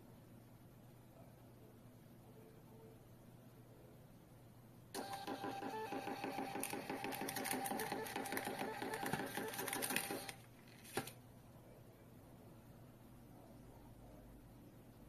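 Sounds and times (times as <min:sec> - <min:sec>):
receipt printer motor whining: 0:05.0 - 0:10.4.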